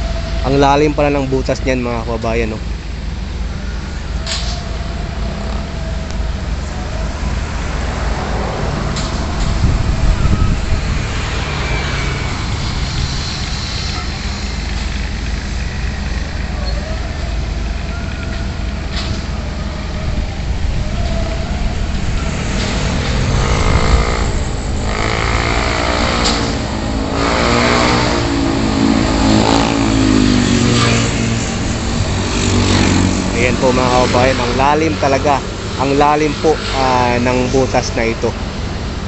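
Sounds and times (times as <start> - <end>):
construction machinery rumble: 0.0 - 39.0
road traffic: 0.0 - 39.0
vehicle engines revving: 0.0 - 39.0.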